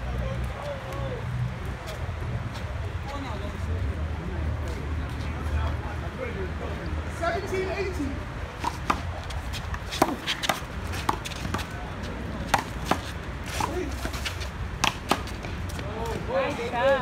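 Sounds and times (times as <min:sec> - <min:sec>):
ball bouncing on concrete: 0:08.6 - 0:16.2.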